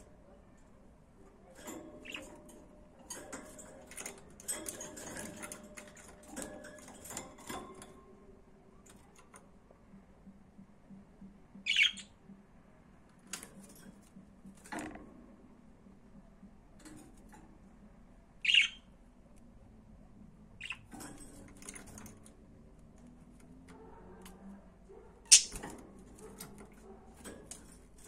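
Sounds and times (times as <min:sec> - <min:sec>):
budgerigars chirping and squawking: 0:11.7 - 0:12.0, 0:18.4 - 0:18.8, 0:20.6 - 0:20.9, 0:25.3 - 0:25.6.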